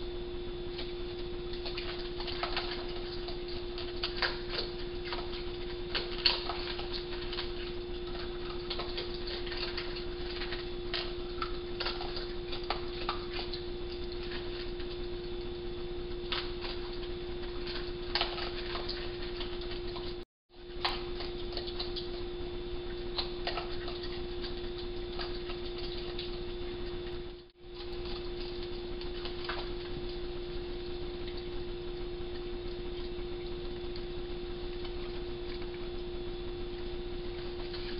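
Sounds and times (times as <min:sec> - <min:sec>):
low electrical hum: 0:00.0 - 0:37.9
animals crunching dry food: 0:00.7 - 0:36.1, 0:36.8 - 0:37.9.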